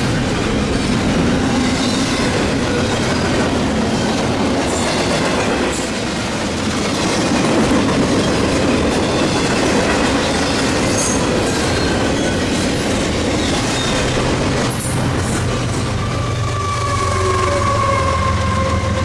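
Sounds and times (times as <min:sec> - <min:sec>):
freight train rumbling past: 0:00.0 - 0:19.0
high wheel squeals: 0:16.1 - 0:19.0.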